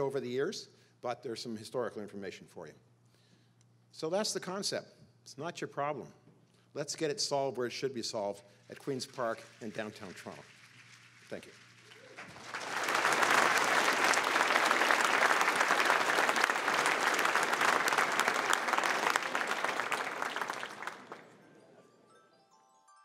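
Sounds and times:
audience applauding: 9.0s - 21.4s.

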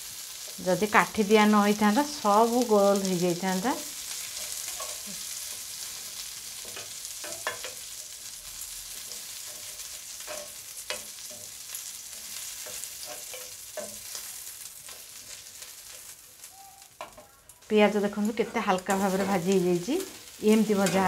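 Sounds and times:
food sizzling in oil: 0.0s - 21.0s
spatula scraping pan: 4.0s - 8.2s, 9.0s - 16.2s, 18.3s - 21.0s.

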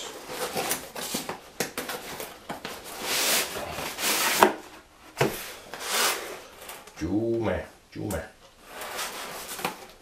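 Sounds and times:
cardboard sliding on cardboard: 2.9s - 6.7s.

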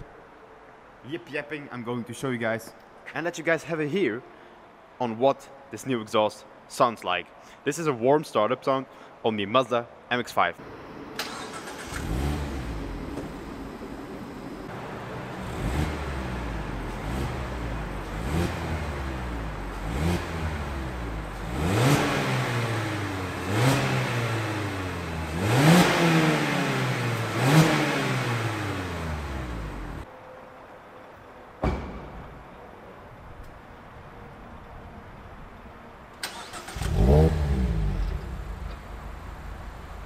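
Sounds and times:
car engine idling and revving: 10.7s - 30.1s, 36.3s - 40.0s.

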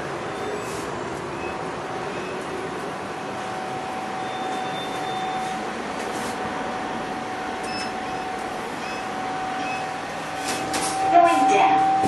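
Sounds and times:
elevator hum and hiss: 0.0s - 12.0s
mid-pitched whine: 0.0s - 12.0s
brief higher tone: 10.9s - 12.0s.

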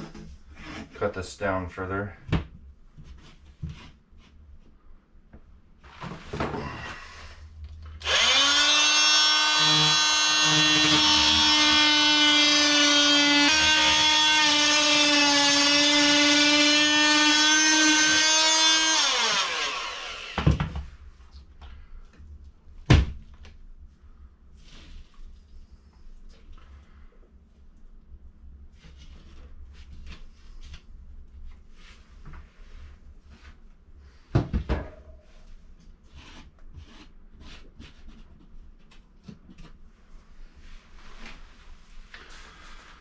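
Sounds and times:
power tool cutting drywall: 8.0s - 20.8s.

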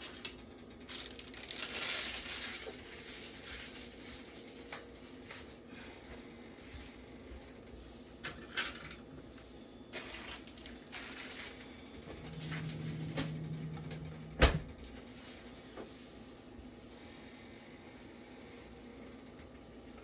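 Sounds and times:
plastic wrapper crinkling: 0.0s - 5.4s, 10.0s - 11.7s
low hum: 10.9s - 19.1s.

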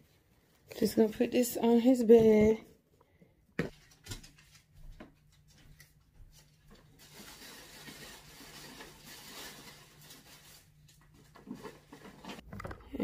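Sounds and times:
tissue paper rustling: 3.7s - 12.4s
faint clicks and bumps: 11.4s - 13.0s.

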